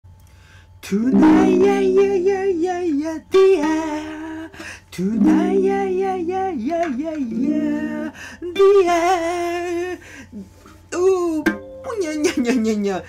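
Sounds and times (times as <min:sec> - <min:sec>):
person singing wavering melody: 0:00.9 - 0:10.0
held lower notes: 0:01.1 - 0:04.4, 0:05.0 - 0:09.7.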